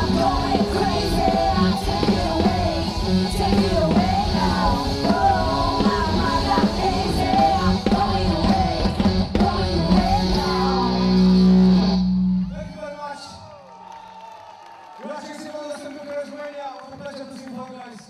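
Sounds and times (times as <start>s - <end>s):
woman singing lead: 0.0s - 11.8s
drum kit: 0.0s - 12.1s
electric guitar: 0.0s - 12.6s
bass guitar: 0.0s - 12.8s.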